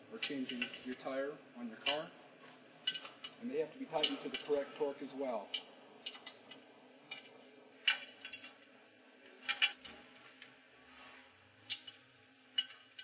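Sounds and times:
wrench clinking on metal nuts: 0:01.8 - 0:02.1, 0:02.9 - 0:04.7, 0:05.5 - 0:08.6.

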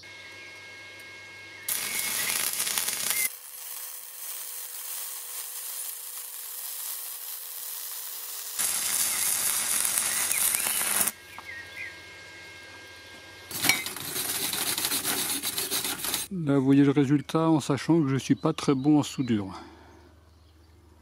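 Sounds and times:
welding arc crackling and sizzling: 0:00.9 - 0:16.3
loud scraping: 0:13.5 - 0:16.3.

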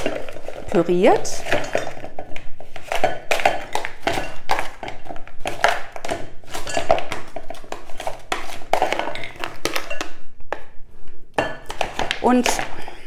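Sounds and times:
frozen fruit clattering into glass bowl: 0:00.0 - 0:10.2.

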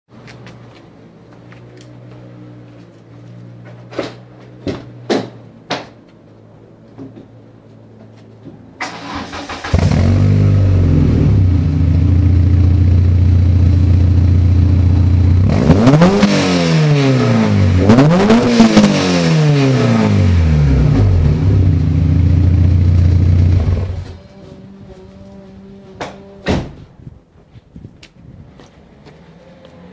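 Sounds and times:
car engine idling and revving: 0:08.8 - 0:24.4.

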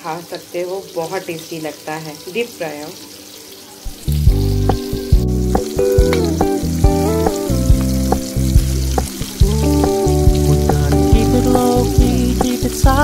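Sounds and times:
prawns sizzling in hot oil: 0:00.0 - 0:13.0
background music with steady beat: 0:04.1 - 0:13.0.

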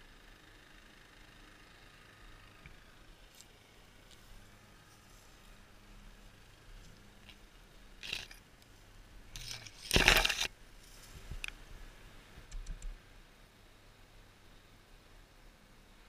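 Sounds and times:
branches scraping and rustling: 0:03.2 - 0:11.6.

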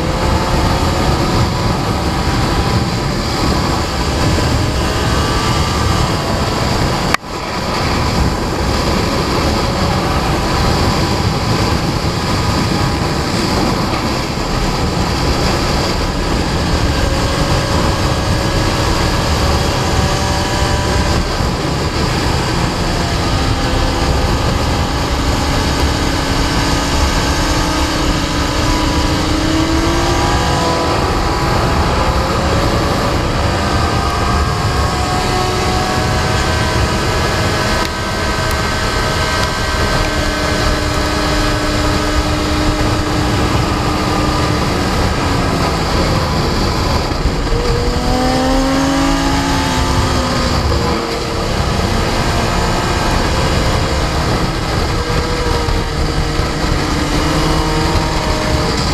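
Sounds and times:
motorcycle engine at speed: 0:00.0 - 0:58.9
wind noise: 0:00.0 - 0:58.9.

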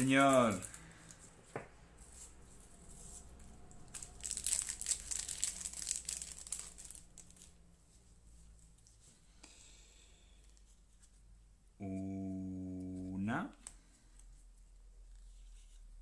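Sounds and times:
foil wrapper crinkling: 0:00.0 - 0:01.2, 0:03.9 - 0:07.6.

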